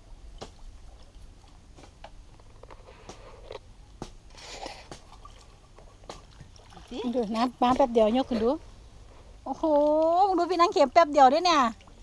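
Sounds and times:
water dripping: 9.5s - 12.0s.

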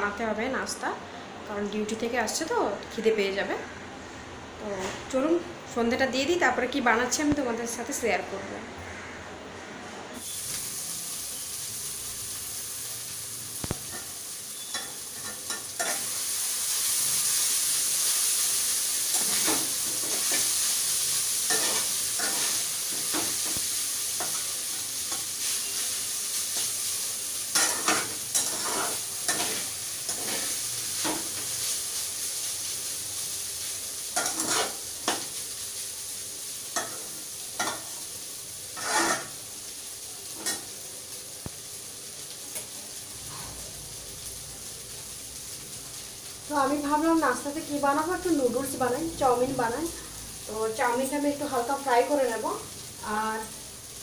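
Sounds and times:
noodles sizzling in oil: 10.2s - 54.0s
spatula scraping and knocking wok: 13.6s - 16.2s, 19.0s - 31.7s, 34.1s - 35.4s, 36.7s - 38.0s, 38.7s - 39.4s.

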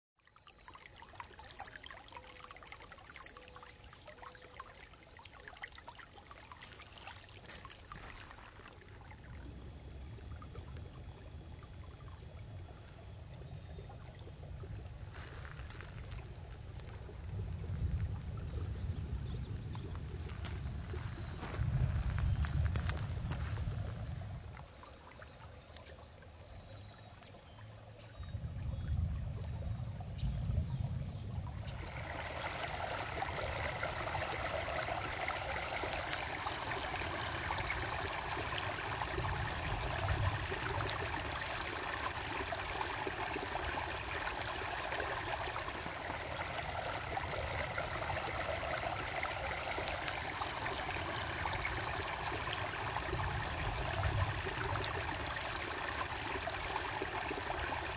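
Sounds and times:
low rumble: 9.3s - 24.8s, 28.0s - 34.6s
water rushing over rocks: 31.6s - 57.9s.

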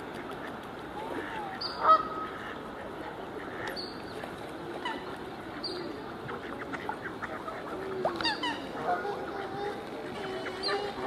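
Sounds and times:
outdoor background noise: 0.0s - 11.0s
waterfowl calling: 1.1s - 2.7s, 4.8s - 11.0s.

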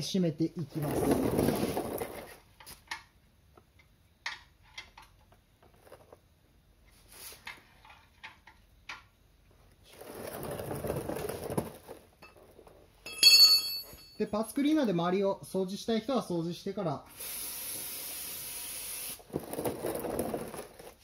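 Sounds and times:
creeper rolling on concrete: 0.4s - 3.0s, 4.6s - 15.0s, 19.2s - 21.0s.

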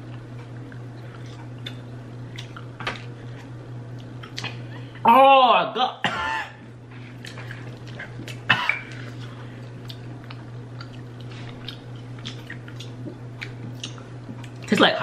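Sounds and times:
steady low hum: 0.0s - 15.0s
person coughing: 6.0s - 6.6s, 8.5s - 8.9s.

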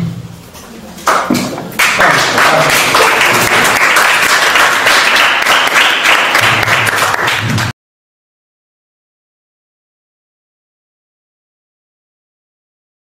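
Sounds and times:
students applauding: 1.8s - 7.7s.

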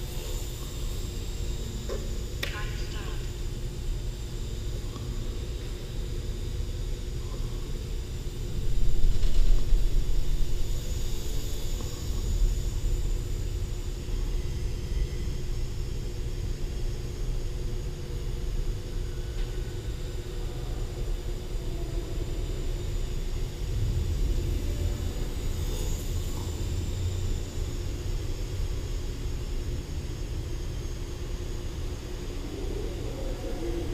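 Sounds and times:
electric motor and propeller whine: 0.0s - 33.9s
low rumble: 21.7s - 27.8s.

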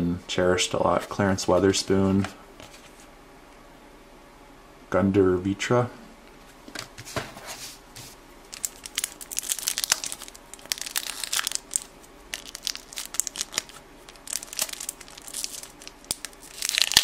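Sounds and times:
wrapper crinkling and tearing: 8.5s - 17.0s.

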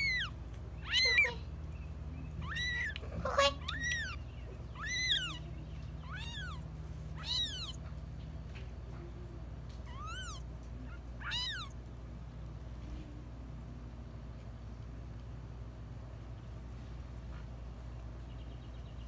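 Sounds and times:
kittens mewing: 0.0s - 1.6s, 2.3s - 8.0s, 9.7s - 11.8s
steady low hum: 0.0s - 19.0s.

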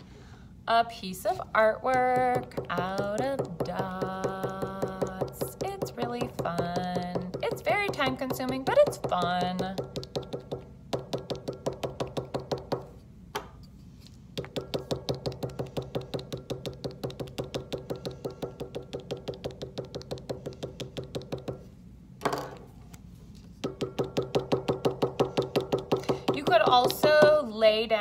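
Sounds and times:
paint stick tapping on paper: 1.9s - 12.9s, 14.4s - 21.7s, 23.6s - 27.5s.

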